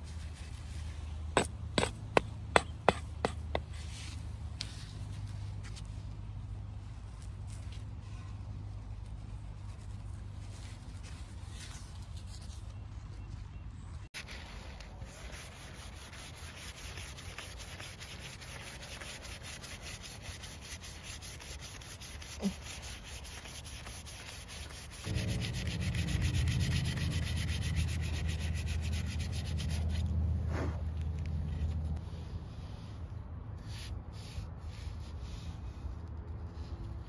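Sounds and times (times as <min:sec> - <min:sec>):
sandpaper rasping on wood: 0:14.9 - 0:30.1
low rumble: 0:25.1 - 0:32.2.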